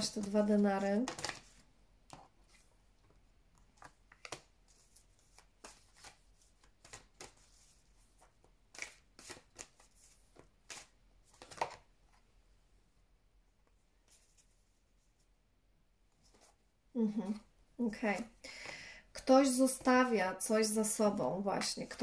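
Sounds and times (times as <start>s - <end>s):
cards shuffling and sliding: 0.2s - 2.8s, 3.6s - 12.2s.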